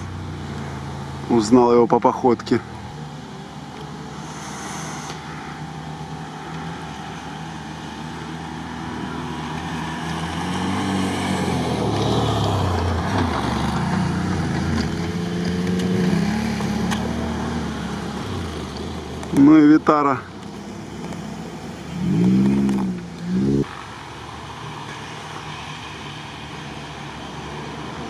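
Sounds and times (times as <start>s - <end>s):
car engine rising in pitch: 3.0s - 28.0s
quad bike engine revving: 4.1s - 24.0s.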